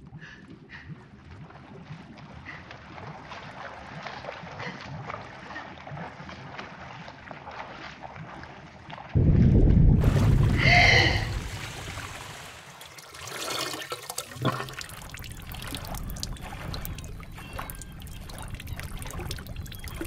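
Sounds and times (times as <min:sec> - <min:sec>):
loud low rush of water: 0:09.2 - 0:12.8.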